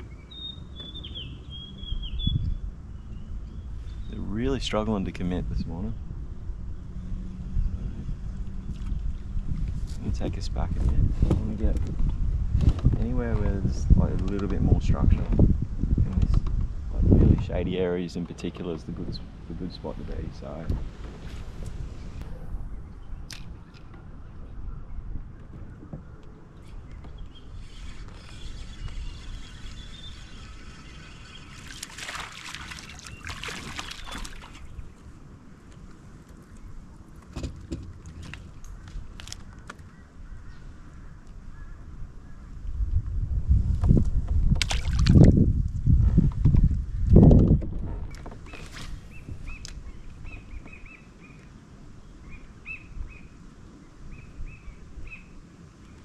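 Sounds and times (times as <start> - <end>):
small bird chirping: 0.0 - 4.2, 26.6 - 31.8
wind and water rumble: 0.0 - 56.0
water splashing: 29.7 - 35.0, 44.6 - 45.4.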